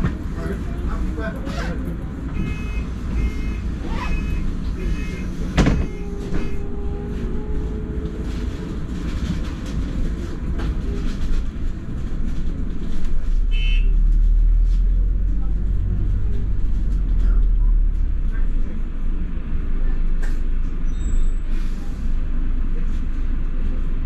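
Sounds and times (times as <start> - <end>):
bus engine rumble: 0.0 - 24.0
bus doors shutting thud: 5.4 - 6.6.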